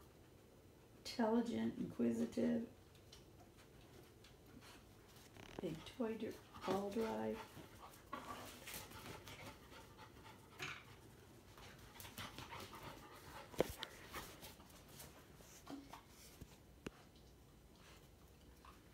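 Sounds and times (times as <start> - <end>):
puppy panting: 5.6 - 16.3.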